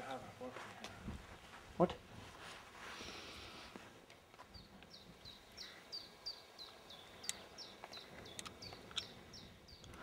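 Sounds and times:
sharp clicks: 7.2s - 9.1s.

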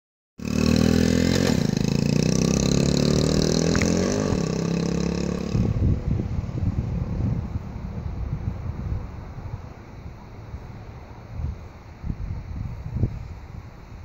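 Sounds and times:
small motorbike engine running: 0.4s - 6.2s
wind noise on microphone: 0.6s - 14.0s.

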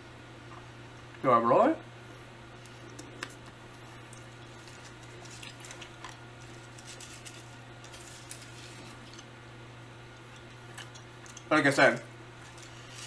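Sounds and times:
steady low hum: 0.0s - 13.0s
person chewing gum: 10.1s - 11.5s.

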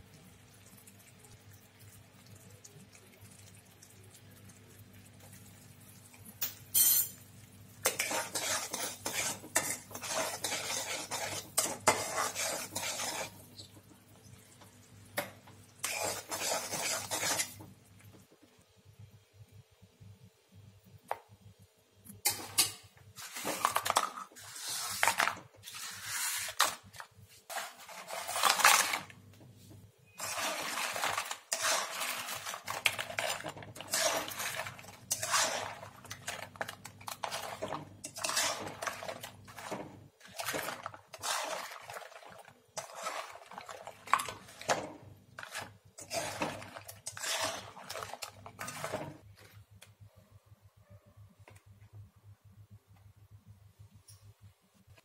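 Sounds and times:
spatula scraping metal pan: 7.8s - 13.7s, 15.8s - 17.6s, 22.6s - 26.8s, 27.5s - 29.0s, 30.0s - 42.2s, 42.8s - 49.2s.

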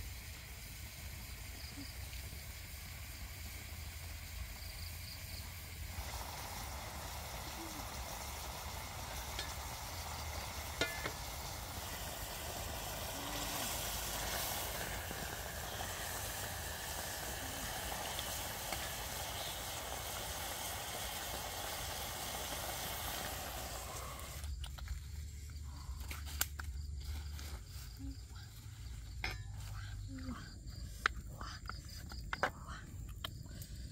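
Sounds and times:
curry sizzling in a metal pan: 0.0s - 24.4s
utensil stirring in pan: 8.4s - 19.6s.

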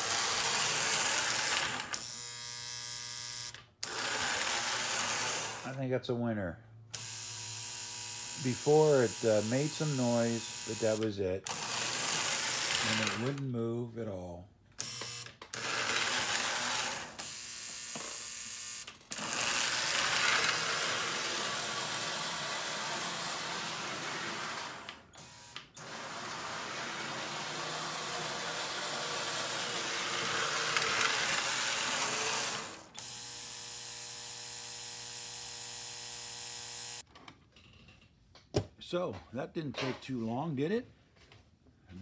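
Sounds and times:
toy train motor whirring: 0.0s - 5.7s, 6.9s - 13.4s, 14.8s - 37.1s
buzzing hum: 1.4s - 3.9s, 29.6s - 37.0s.

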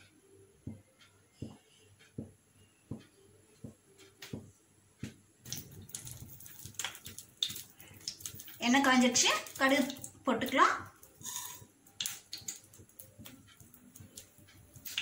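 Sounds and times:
soft ticking: 0.0s - 15.0s
oil crackling and sizzling: 5.4s - 15.0s.

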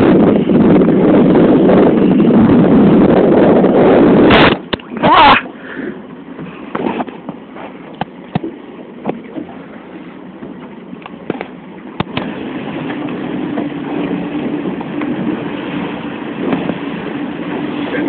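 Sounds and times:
wind rumble on microphone: 0.0s - 18.0s
short pitched cry: 5.0s - 5.5s.

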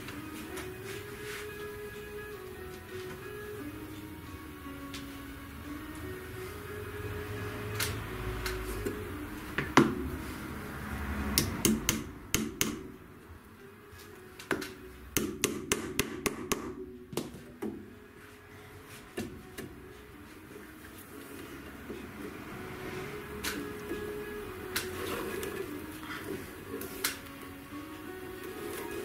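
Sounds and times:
hammer tapping tacks into wood: 11.4s - 12.9s, 14.5s - 17.8s.

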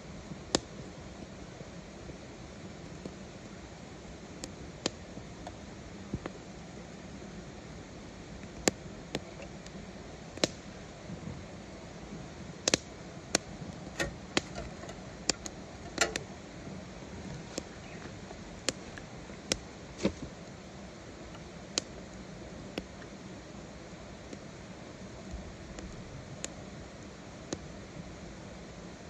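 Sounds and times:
wood fire crackling: 0.2s - 29.0s.

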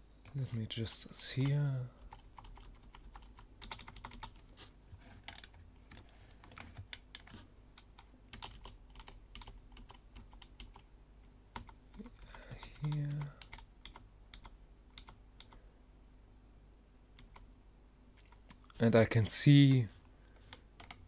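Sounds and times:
low steady hum: 0.0s - 21.0s
keyboard keys clicking: 1.4s - 4.4s, 5.3s - 10.8s.

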